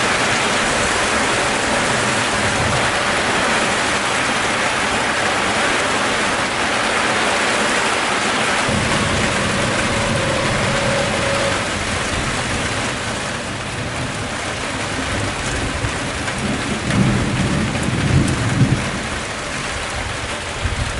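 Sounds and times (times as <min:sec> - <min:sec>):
rain hissing: 0:00.0 - 0:20.9
thunder rumbling: 0:08.7 - 0:20.9.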